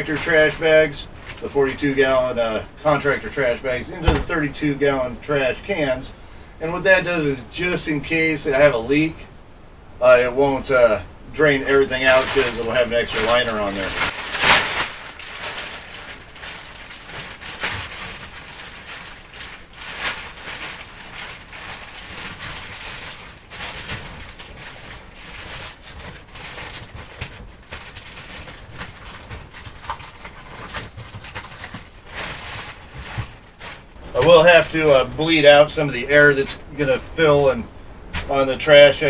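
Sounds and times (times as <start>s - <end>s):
plastic trash bag rustling: 0.0s - 4.8s, 11.4s - 37.4s.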